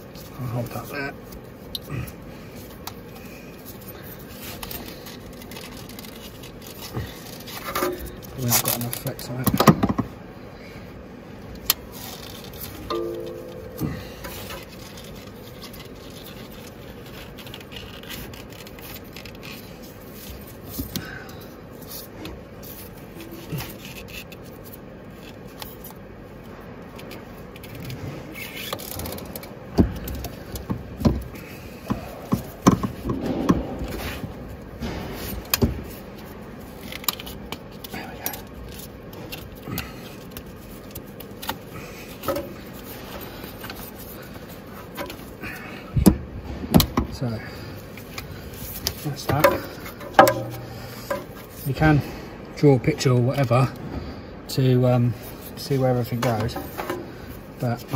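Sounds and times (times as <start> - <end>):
sharp metal knocks and clanks: 12.8 - 13.8, 49.3 - 51.3.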